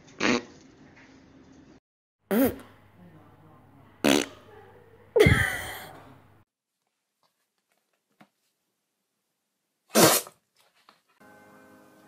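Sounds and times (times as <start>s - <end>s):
fluttering fart sound: 0.1s - 0.6s, 4.0s - 4.4s, 9.9s - 10.3s.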